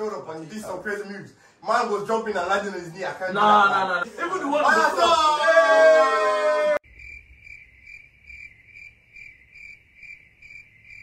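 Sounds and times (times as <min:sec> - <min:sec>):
crickets chirping: 0:06.8 - 0:11.0.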